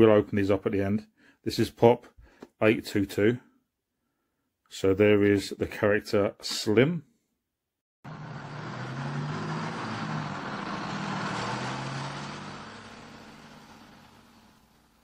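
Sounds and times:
bus driving past: 0:08.1 - 0:15.0.

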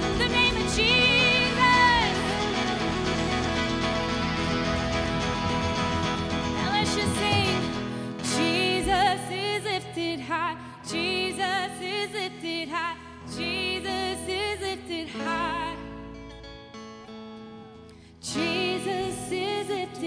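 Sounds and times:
band playing sustained chords: 0:00.0 - 0:08.9.

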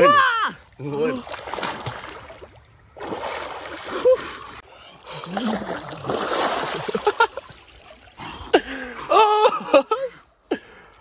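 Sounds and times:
person exclaiming: 0:00.0 - 0:01.2
water splashing from swimming: 0:00.0 - 0:08.8.

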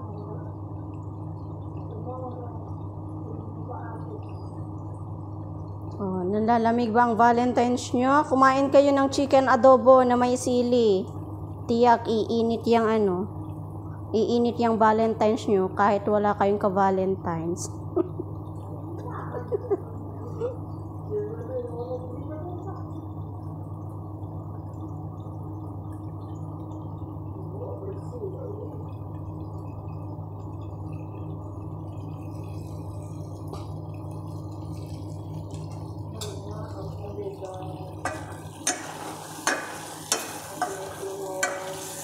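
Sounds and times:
kitchen hum: 0:00.0 - 0:42.0.

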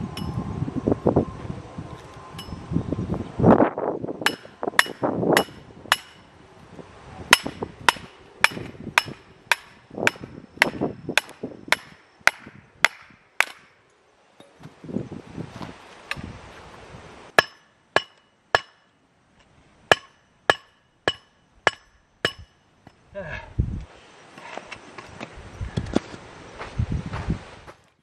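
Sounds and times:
metal-on-metal blows ringing: 0:04.2 - 0:06.3, 0:07.3 - 0:13.8, 0:17.4 - 0:19.0, 0:19.9 - 0:23.0.

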